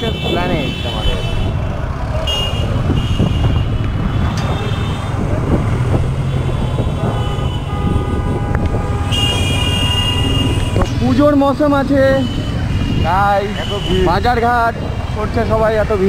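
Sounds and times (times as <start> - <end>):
city street traffic: 0.0 - 16.0
motorcycle engine rumble: 0.1 - 16.0
vehicle horn: 2.2 - 5.1, 6.2 - 10.9.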